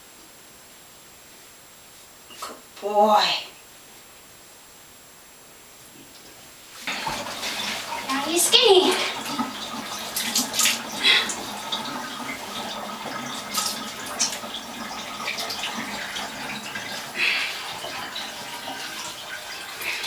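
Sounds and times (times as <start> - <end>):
water splashing in bathtub: 6.7 - 20.0.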